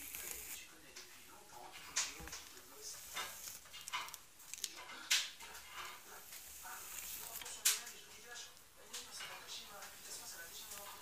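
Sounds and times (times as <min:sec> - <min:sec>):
hairbrush swishing through hair: 0:00.0 - 0:00.6.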